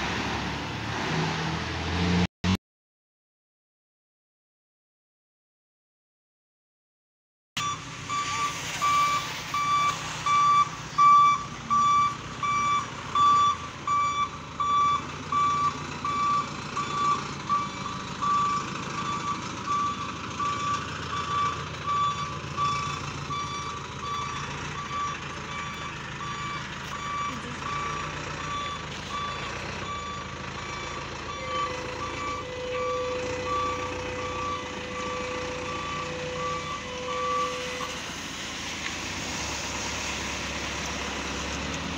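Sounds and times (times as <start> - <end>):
reversing alarm beeping: 7.6 - 38.0
truck engine running: 7.6 - 41.9.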